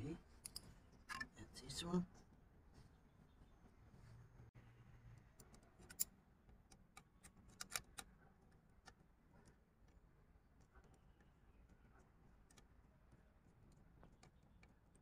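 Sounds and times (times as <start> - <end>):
clicks of small plastic parts: 5.4 - 8.1.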